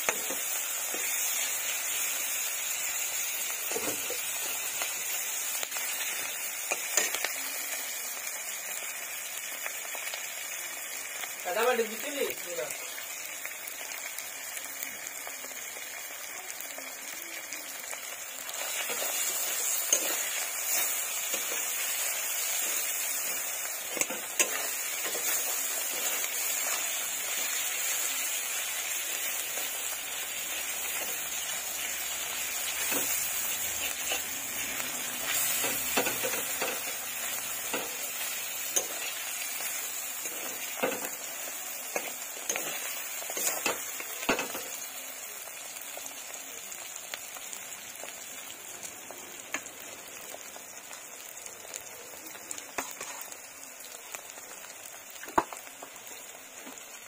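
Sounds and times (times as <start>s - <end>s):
onions sizzling in oil: 0.0s - 57.0s.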